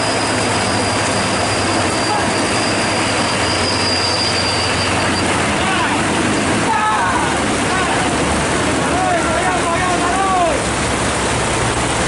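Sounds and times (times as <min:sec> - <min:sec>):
high-pitched brake squeal: 0:00.0 - 0:05.7
heavy rain hissing: 0:00.0 - 0:12.0
truck engine hum: 0:00.0 - 0:12.0.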